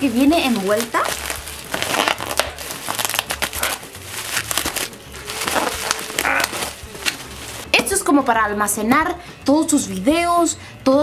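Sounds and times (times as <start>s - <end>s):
plastic wrapping crinkling and tearing: 0.0s - 7.7s.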